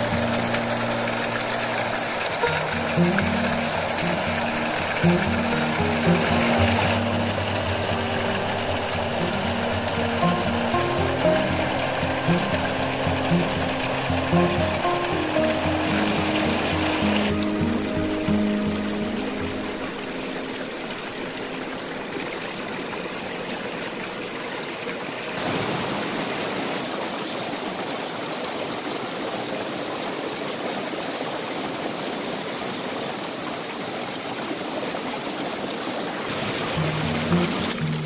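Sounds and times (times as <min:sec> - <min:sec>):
music: 0:00.0 - 0:22.4, 0:36.6 - 0:38.0
stream running over rocks: 0:00.0 - 0:38.0.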